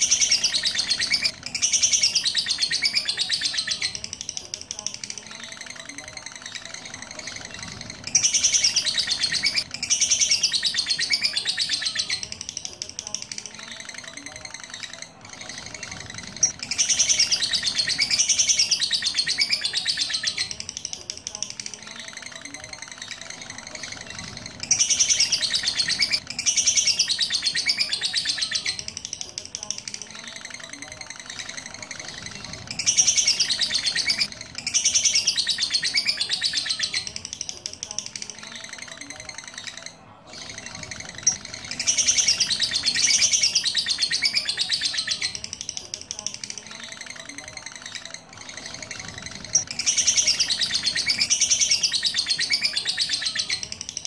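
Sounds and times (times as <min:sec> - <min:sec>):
lovebird chirping: 0:00.0 - 0:54.0.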